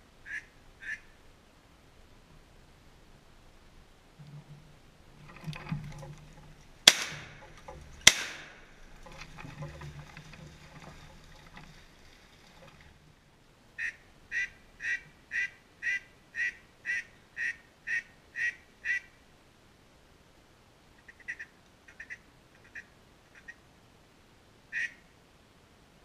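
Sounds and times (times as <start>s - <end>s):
duck quacking: 0.2s - 1.1s, 13.8s - 19.1s, 24.7s - 25.0s
shotgun shots: 6.8s - 8.7s.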